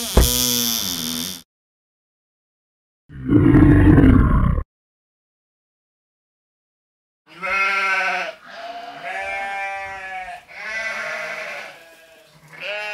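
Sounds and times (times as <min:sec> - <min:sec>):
long wavering bleats: 0:07.3 - 0:12.9.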